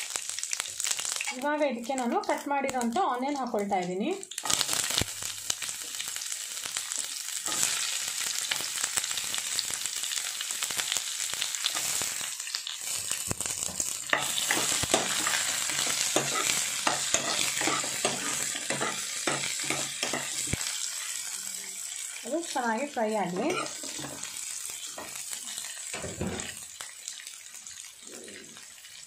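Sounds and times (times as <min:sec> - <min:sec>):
onions sizzling in oil: 0:00.0 - 0:29.0
metal spoon scraping a pan: 0:13.6 - 0:21.4, 0:23.2 - 0:26.6.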